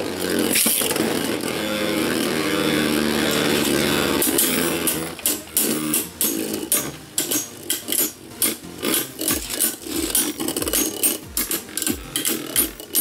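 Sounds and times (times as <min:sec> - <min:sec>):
spinning tops whirring and grinding: 0:00.0 - 0:13.0
spinning tops clacking together: 0:03.1 - 0:13.0.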